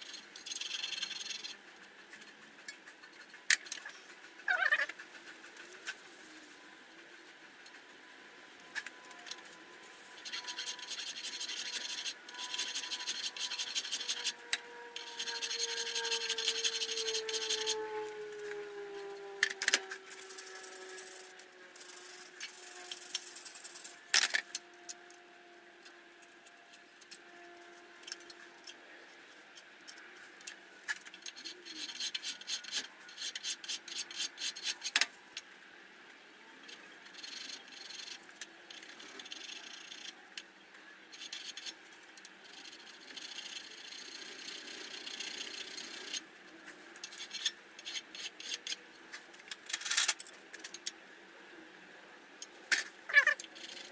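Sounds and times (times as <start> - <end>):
hand file rasping on metal: 10.2 - 18.0.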